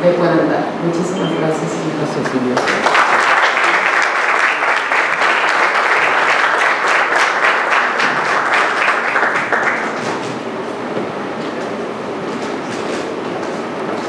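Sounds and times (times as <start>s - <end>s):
audience applauding: 2.4s - 10.3s.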